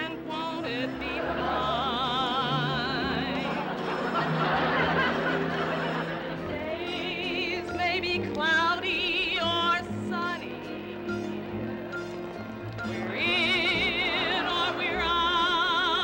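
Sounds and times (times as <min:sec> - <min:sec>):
woman singing operatically: 0:00.0 - 0:03.8, 0:06.4 - 0:11.5, 0:12.8 - 0:16.0
orchestra: 0:00.0 - 0:16.0.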